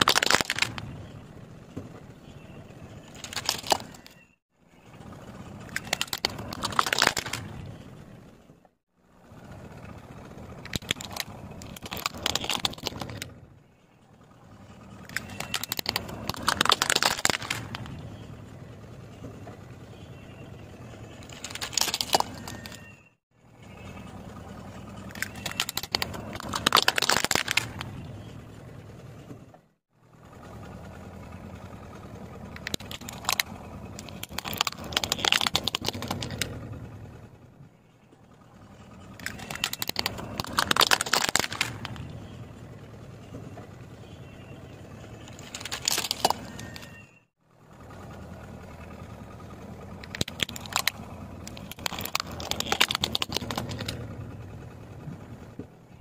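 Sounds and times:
plastic toys cracking under tyre: 0.0 - 1.2, 3.0 - 4.2, 5.5 - 7.8, 10.5 - 13.4, 14.8 - 18.2, 21.1 - 22.9, 24.6 - 28.2, 32.4 - 36.9, 39.0 - 42.4, 45.1 - 47.0, 49.9 - 54.1
car low rumble: 0.0 - 56.0.

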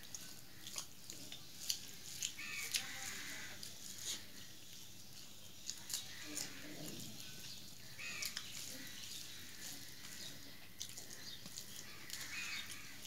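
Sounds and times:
fingers squishing food on plate: 0.0 - 4.8, 5.5 - 13.0
wet chewing: 0.0 - 13.0.

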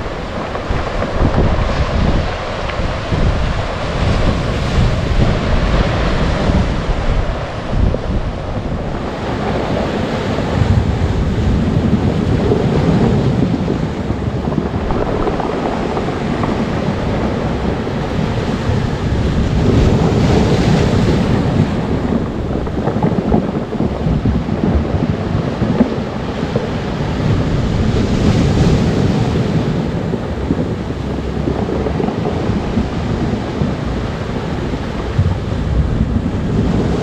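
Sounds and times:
surf washing up beach: 0.0 - 37.0
wind buffeting microphone: 0.0 - 37.0
cobblestones tumbling together: 11.8 - 20.7.

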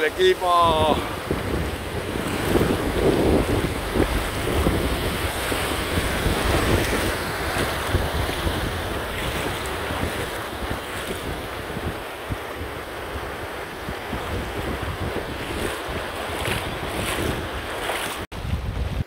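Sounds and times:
water splashing: 0.0 - 13.0, 13.9 - 18.3
surf washing and foaming: 0.0 - 19.0
wind buffeting microphone: 0.0 - 19.0.

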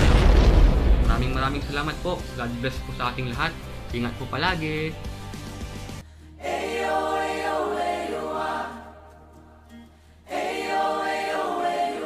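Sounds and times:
choir singing held chords: 6.3 - 9.5, 10.2 - 12.0.

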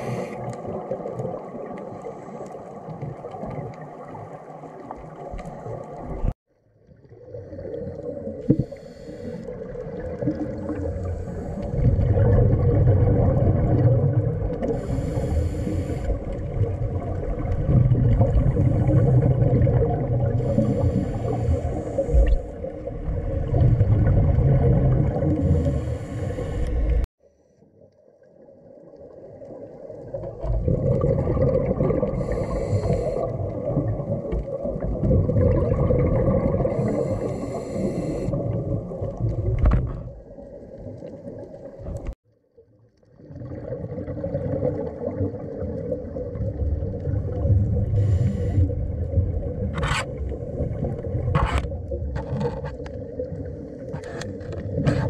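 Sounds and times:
scuba regulator breathing: 0.0 - 0.6, 8.5 - 9.6, 11.0 - 11.8, 14.6 - 16.3, 20.4 - 22.6, 25.3 - 27.1, 32.1 - 33.5, 36.6 - 38.4, 47.9 - 48.8
exhaled bubbles: 0.0 - 27.1, 28.9 - 42.2, 43.0 - 55.0
low underwater rumble: 0.0 - 27.1, 28.7 - 42.2, 42.9 - 55.0.

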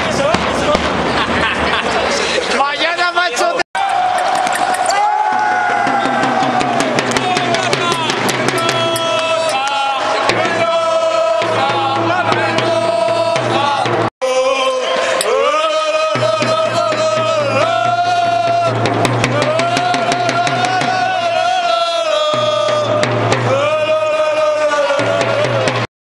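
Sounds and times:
drum beats: 0.0 - 2.1, 3.8 - 14.1, 15.2 - 25.9
person singing long notes: 7.1 - 25.9.

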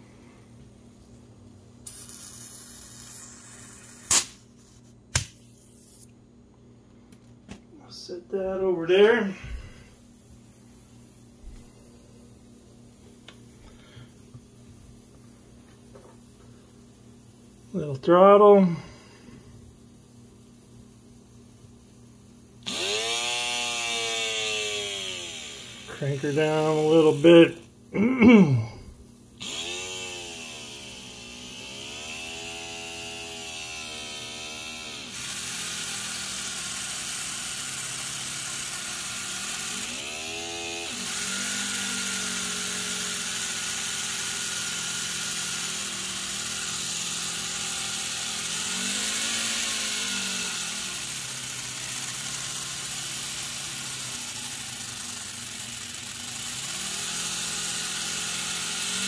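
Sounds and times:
model airplane engine running: 35.2 - 59.0.

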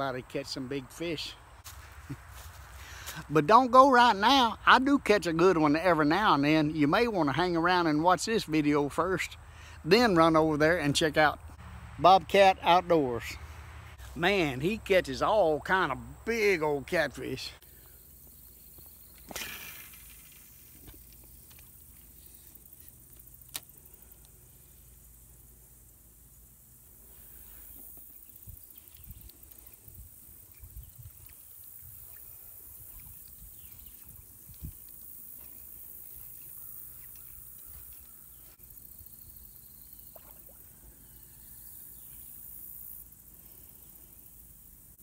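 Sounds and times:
steady high hiss: 2.8 - 45.0
small water splash: 40.1 - 40.8.

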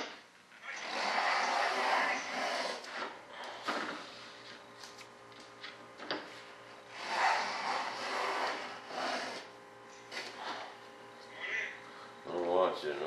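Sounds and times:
hand plane rasping on wood: 7.0 - 9.5.

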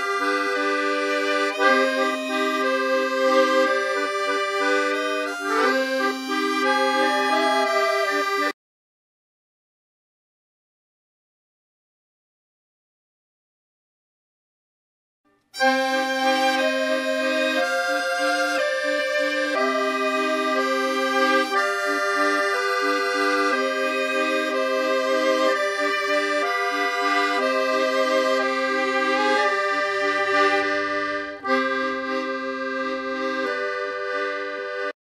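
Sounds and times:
slow melody over held chords: 0.0 - 8.5, 15.6 - 34.8.

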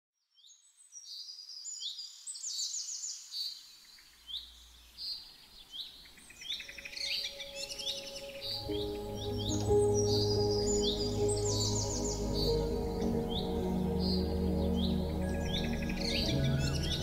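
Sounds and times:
small birds chirping: 0.4 - 17.0
faint background music: 6.3 - 17.0.

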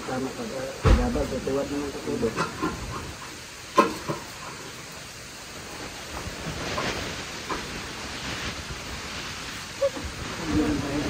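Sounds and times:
steady hiss: 0.0 - 11.0
sacks rustling and scraping: 5.4 - 11.0.

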